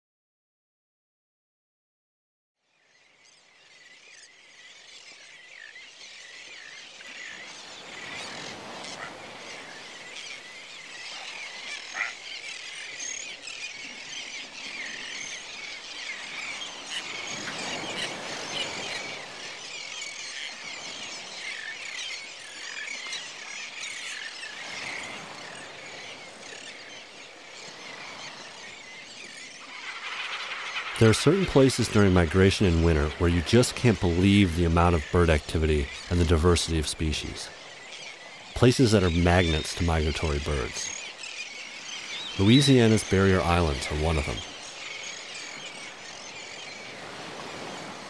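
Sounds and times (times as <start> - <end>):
flock of waterbirds calling: 2.9 - 48.0
low rushing noise: 29.4 - 37.4.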